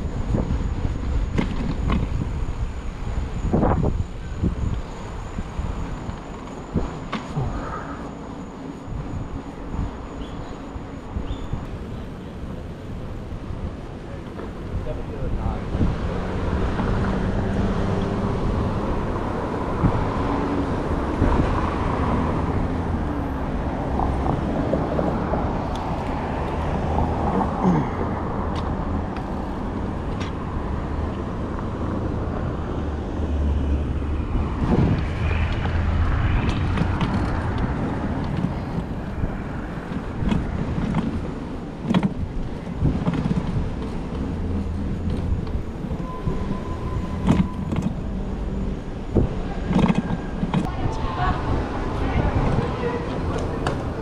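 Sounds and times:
wind buffeting microphone: 0.0 - 7.8, 14.6 - 54.0
cars passing: 0.0 - 54.0
sharp clicks and knocks: 36.4 - 38.9, 41.8 - 42.2, 42.8 - 44.2, 47.2 - 48.0, 49.2 - 50.7.

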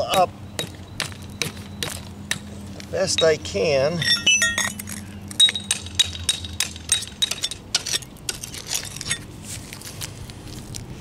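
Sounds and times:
metal tools clinking on concrete: 2.8 - 9.3.

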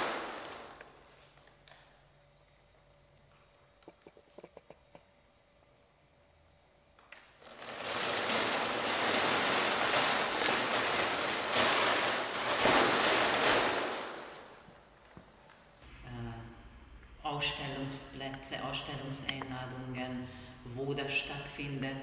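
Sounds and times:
foil sheet crinkling: 0.0 - 1.3, 7.4 - 14.7.

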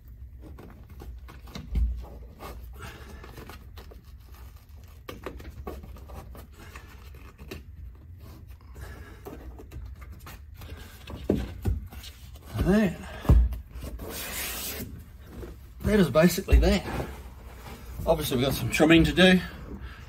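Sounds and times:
cloth rustling and scraping: 13.8 - 19.0.

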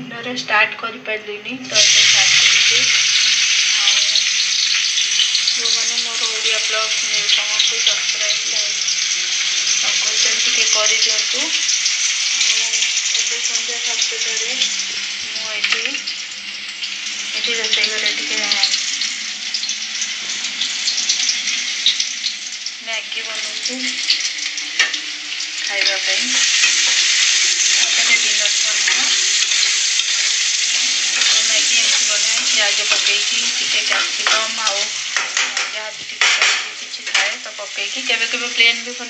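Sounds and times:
food sizzling in a pan: 1.6 - 39.0
spatula scraping a pan: 24.1 - 37.4.

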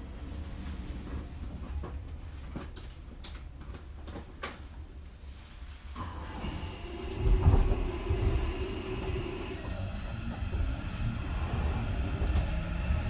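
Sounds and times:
electric train humming: 6.0 - 13.0
loud low rumble: 6.0 - 13.0
traction inverter whine: 6.0 - 13.0.

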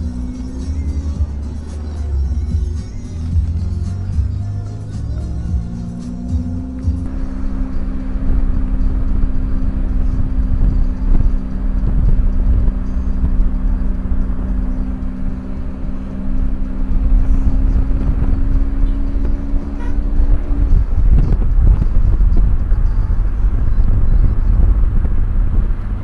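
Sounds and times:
car driving along road: 0.0 - 26.0
steady low hum: 0.0 - 26.0
wind buffeting microphone: 7.0 - 26.0.

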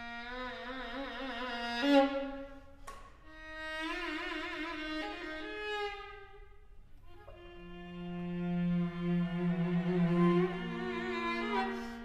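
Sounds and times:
string quartet playing: 3.3 - 12.0.

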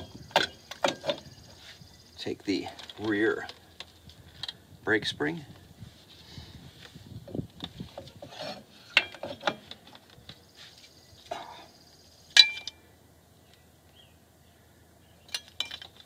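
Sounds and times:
metal brake parts clicking: 15.3 - 16.0.

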